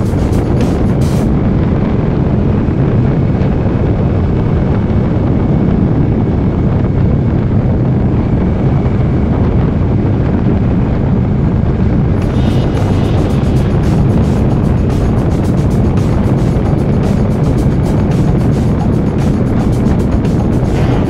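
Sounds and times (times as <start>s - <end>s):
motorcycle engine running: 0.0s - 1.4s, 12.1s - 21.0s
wind noise on microphone: 0.0s - 21.0s.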